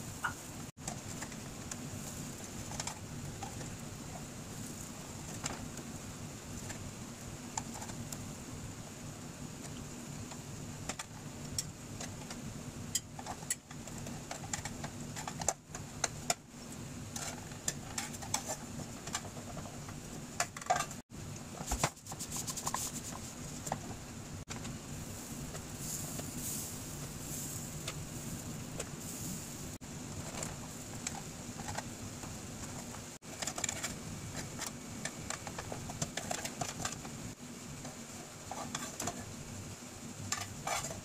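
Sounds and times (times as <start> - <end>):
steady low hum: 0.0 - 41.0
spatula scraping frying pan: 40.3 - 41.0.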